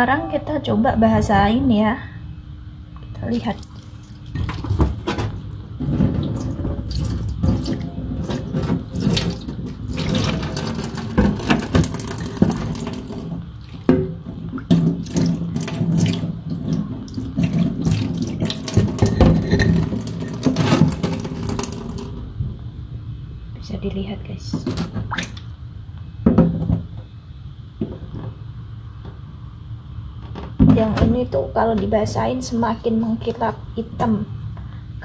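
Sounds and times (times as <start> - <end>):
tap water splashing into sink: 3.6 - 22.1.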